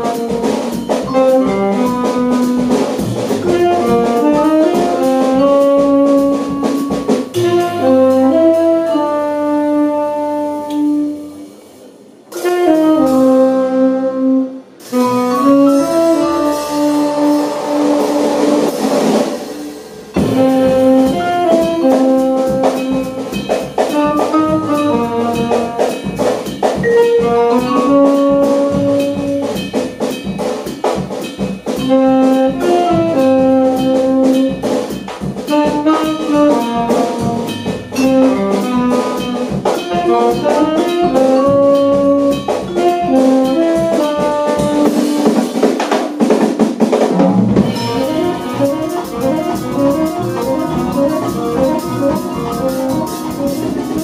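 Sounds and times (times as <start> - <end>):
double bass: 0.0 - 11.4, 12.4 - 19.2, 20.2 - 45.5, 47.4 - 54.0
saxophone: 0.0 - 11.6, 12.3 - 19.5, 20.2 - 26.2, 26.8 - 30.0, 31.8 - 45.6, 47.7 - 54.0
drum kit with cymbals: 0.0 - 54.0
vibraphone: 0.2 - 5.8, 15.0 - 17.7, 20.1 - 45.1.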